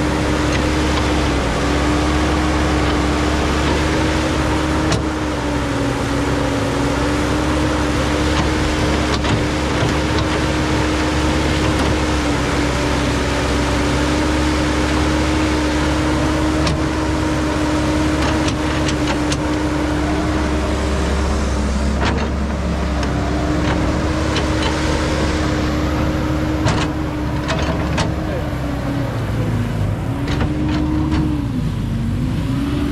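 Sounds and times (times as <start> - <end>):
excavator diesel engine humming: 0.0 - 32.9
sharp clicks and knocks: 8.3 - 10.7, 18.1 - 19.7, 21.9 - 28.3, 30.2 - 31.4.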